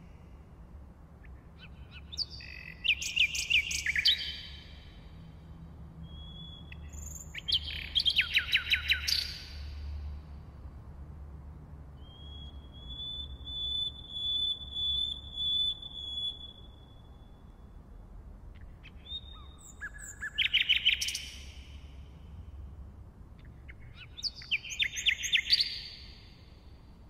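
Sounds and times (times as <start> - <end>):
nightingale singing: 1.2 - 5.0, 6.0 - 9.8, 12.0 - 17.8, 18.6 - 21.9, 23.4 - 26.6.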